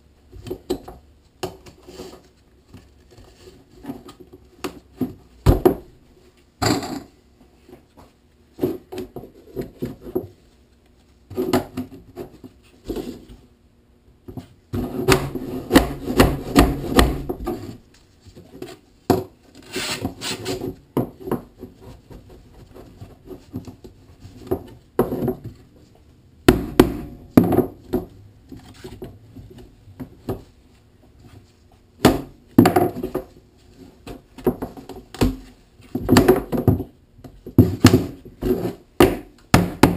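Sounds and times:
plastic pipes knocking on wooden bench: 0:15.0 - 0:17.6.

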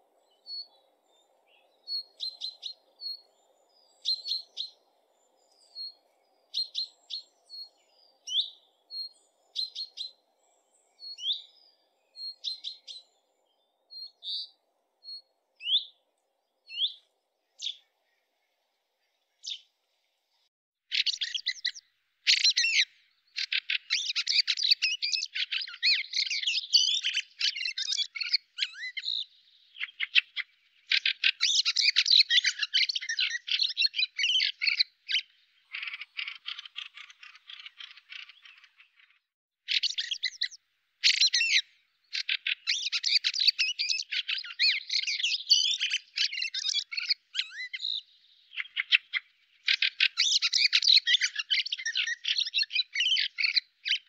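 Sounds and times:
chaffinch calling: 0:00.3 - 0:10.3, 0:11.0 - 0:13.2, 0:13.9 - 0:16.0, 0:16.7 - 0:17.9, 0:19.4 - 0:19.7, 0:20.9 - 0:54.0
harsh bird chattering: 0:35.7 - 0:38.9.

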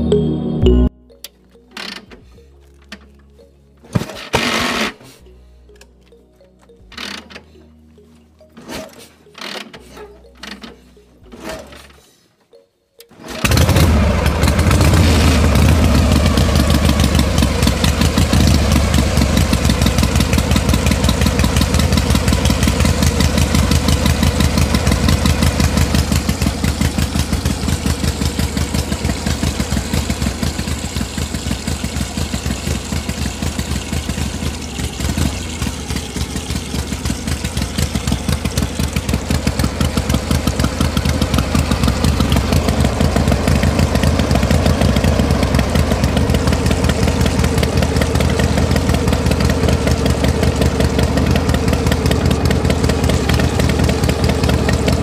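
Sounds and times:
diesel engine chugging: 0:13.2 - 0:55.0.

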